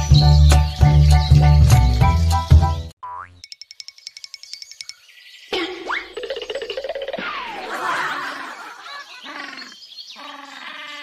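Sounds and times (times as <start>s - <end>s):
cartoon boing effect: 3.0s - 3.4s
high twinkling ticks: 3.1s - 5.6s.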